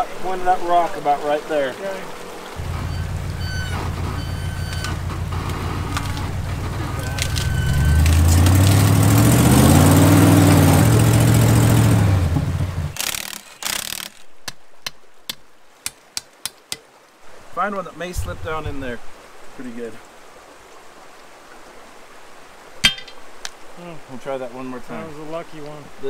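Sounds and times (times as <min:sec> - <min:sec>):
truck engine revving: 0:02.6 - 0:13.0.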